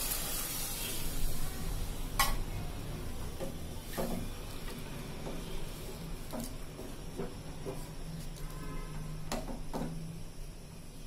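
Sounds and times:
liquid sizzling in hot pot: 0.0 - 2.6.

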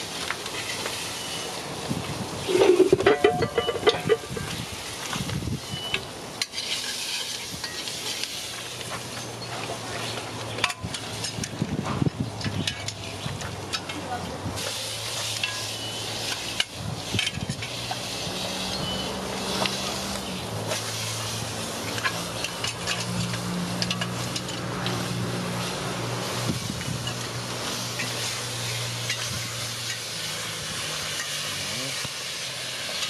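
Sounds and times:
wood fire crackling: 0.0 - 33.0
pots clicking: 2.5 - 4.5.

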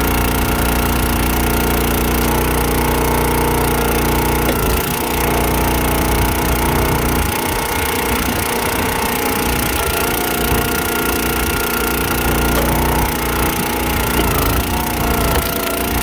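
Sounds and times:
hydraulic ram splitting log: 0.0 - 16.0
small gas engine running: 0.0 - 16.0.

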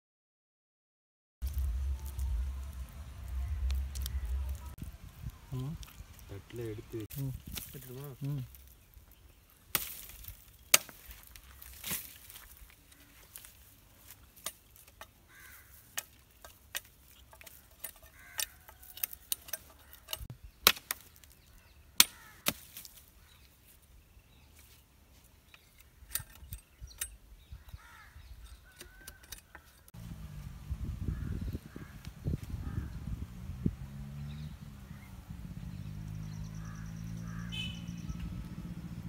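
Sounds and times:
low rumbling noise: 1.4 - 7.5, 30.0 - 39.0
blade chopping wooden branch: 7.1 - 8.8, 9.7 - 23.1
faint bird calls: 21.1 - 22.5, 34.2 - 39.0.

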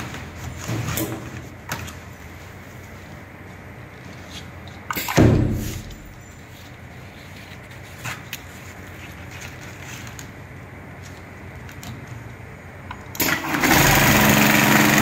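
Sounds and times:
loud machine clunk: 4.9 - 6.2.

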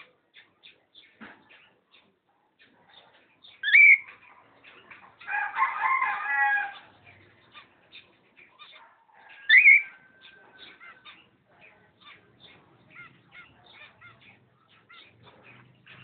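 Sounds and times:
small birds chirping: 0.0 - 16.0
cockatiel whistled calls: 3.6 - 4.1, 9.4 - 10.0
rooster crowing: 5.3 - 6.9.

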